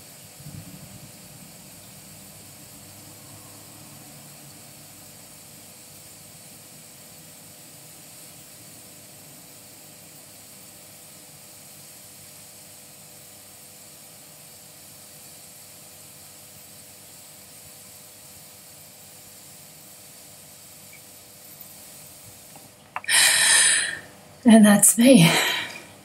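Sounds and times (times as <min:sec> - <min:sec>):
breath exhaling into device: 0:23.0 - 0:24.1.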